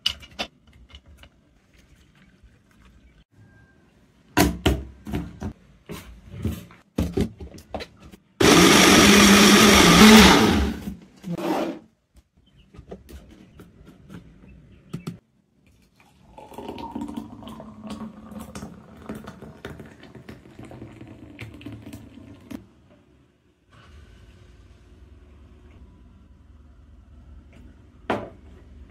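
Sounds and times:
blender motor running: 8.4s - 10.8s
milkshake pouring into glass: 16.0s - 22.6s.

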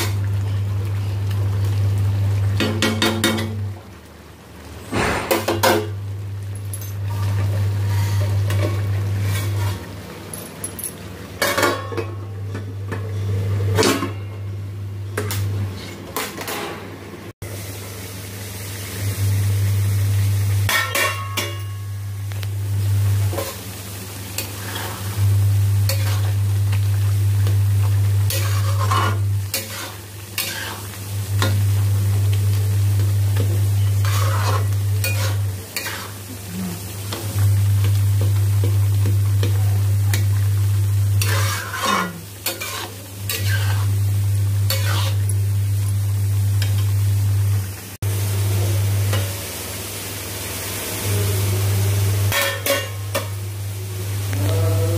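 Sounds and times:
masala sizzling: 0.0s - 54.9s
metal spatula scraping a pan: 7.1s - 9.9s, 25.9s - 26.4s, 28.3s - 31.6s, 33.8s - 36.2s, 41.2s - 44.0s, 44.7s - 45.3s
low steady hum: 25.1s - 49.4s.

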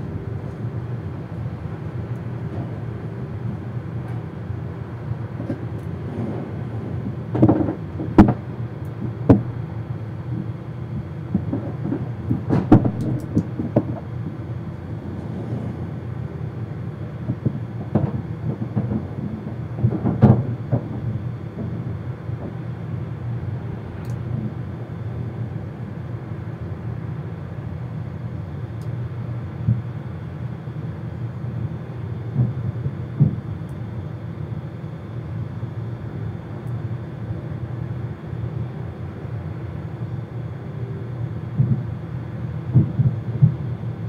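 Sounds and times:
steady low rumble: 0.0s - 44.0s
clattering knocks and bangs: 17.3s - 21.8s.

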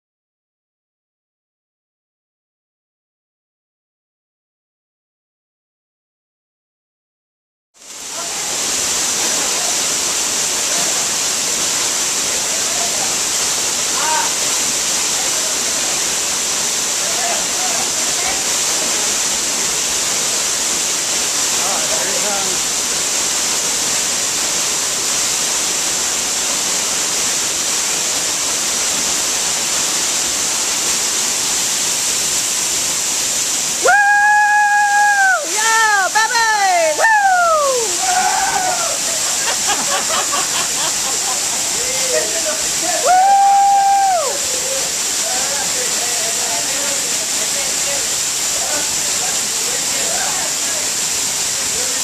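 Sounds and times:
waterfall rushing: 7.8s - 52.0s
person yelling: 33.8s - 39.1s.

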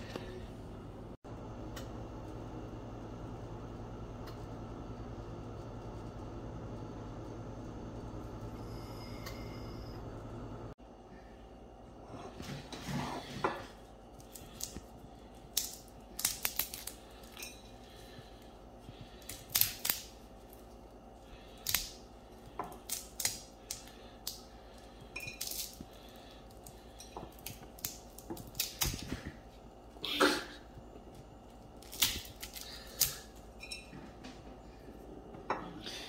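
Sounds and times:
chestnut shell cracking: 15.5s - 17.4s, 19.2s - 20.2s, 22.6s - 24.5s, 25.3s - 25.8s, 31.8s - 33.3s.

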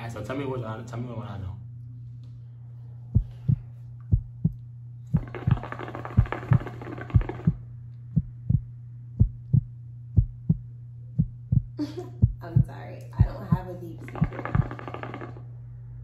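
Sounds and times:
low hum: 0.0s - 16.0s
heartbeat: 3.1s - 14.9s
hookah bubbling: 5.1s - 7.7s, 13.3s - 15.7s.

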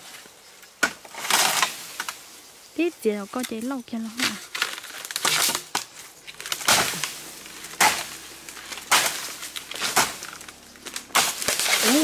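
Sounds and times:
sharp impacts with scraping tail: 6.0s - 12.0s.

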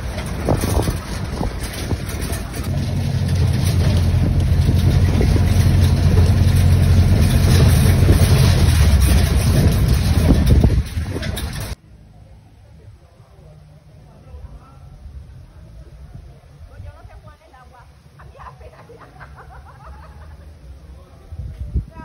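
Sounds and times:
wind buffeting microphone: 0.0s - 11.8s, 21.2s - 22.0s.

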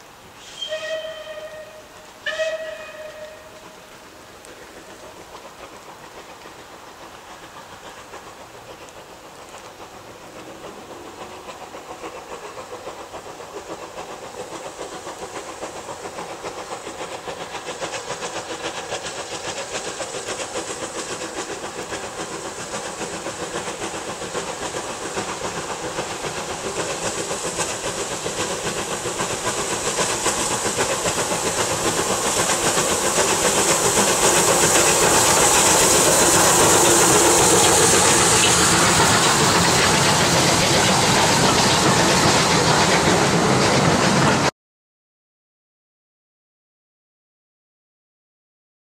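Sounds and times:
steam locomotive running: 0.0s - 44.5s.

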